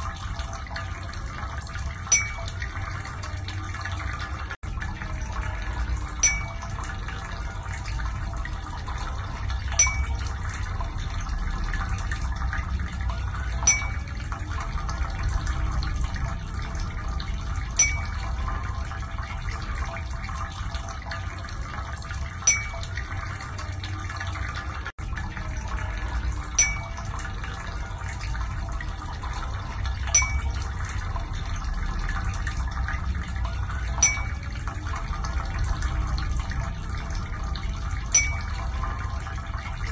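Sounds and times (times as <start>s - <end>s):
steady rushing water-like noise: 0.0s - 39.9s
short ringing plink: 2.0s - 2.9s, 6.2s - 7.0s, 9.7s - 10.4s, 13.6s - 14.2s, 17.7s - 18.8s, 22.4s - 23.2s, 26.5s - 27.3s, 30.1s - 30.8s, 33.9s - 34.6s, 38.0s - 39.0s.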